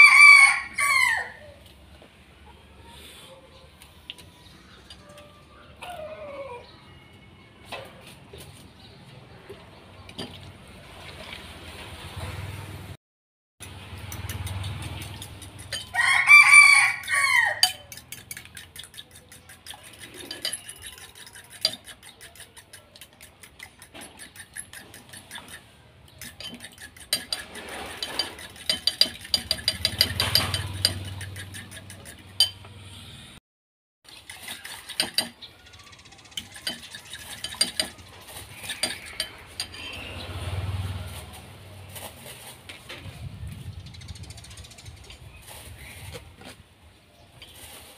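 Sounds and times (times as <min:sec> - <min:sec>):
rooster crowing: 0:00.0 - 0:01.6, 0:15.8 - 0:17.9
spoon beating eggs in a bowl: 0:14.1 - 0:32.6, 0:34.1 - 0:35.4, 0:36.3 - 0:39.9.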